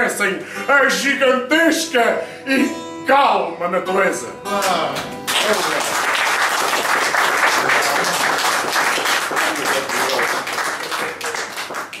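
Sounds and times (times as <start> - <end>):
small audience applauding: 4.6 - 12.0.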